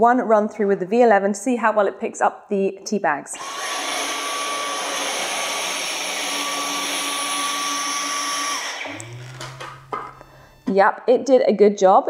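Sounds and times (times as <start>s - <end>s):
motor winding down: 3.4s - 10.7s
vacuum cleaner whine: 3.4s - 10.8s.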